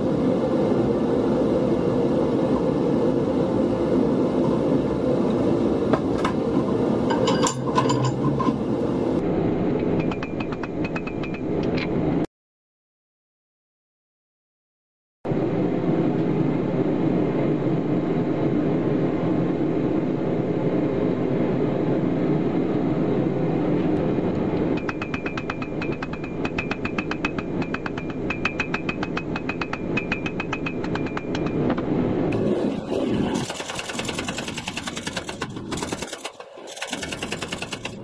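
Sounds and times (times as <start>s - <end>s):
hammer striking anvil: 7.1s - 8.6s, 24.8s - 31.9s
low rushing noise: 29.8s - 33.8s.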